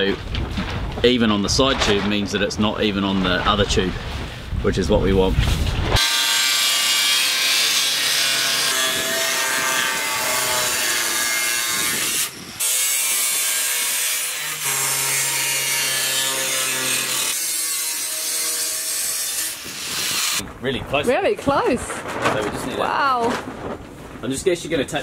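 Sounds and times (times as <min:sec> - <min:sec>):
angle grinder cutting metal tube: 0:06.0 - 0:20.4.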